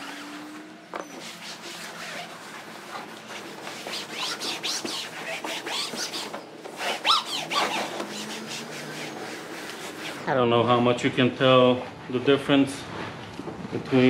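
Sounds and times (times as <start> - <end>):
cloth squeaking on vinyl: 0.0 - 10.3
towel rubbing on vinyl: 0.1 - 10.3.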